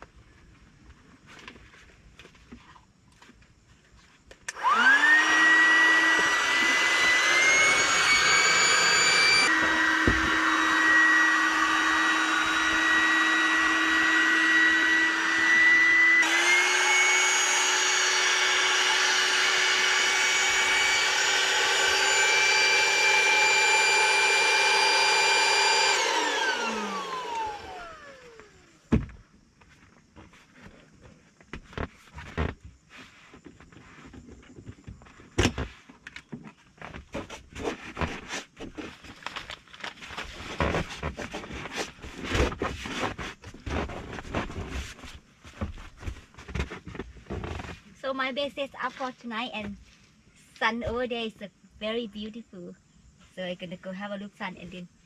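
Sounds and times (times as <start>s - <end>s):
electric air pump whirring: 4.5s - 29.2s, 40.1s - 47.8s.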